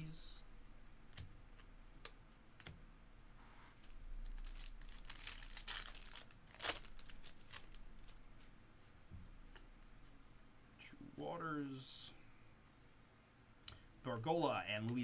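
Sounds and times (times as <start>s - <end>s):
card pack wrapper crinkling: 4.2s - 8.2s.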